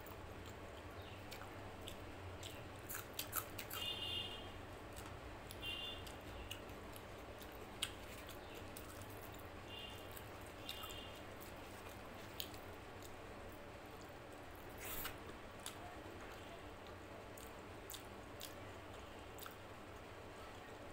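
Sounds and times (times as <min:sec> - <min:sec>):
wet chewing and lip smacks: 0:10.1 - 0:13.2, 0:16.8 - 0:18.6, 0:19.4 - 0:19.6.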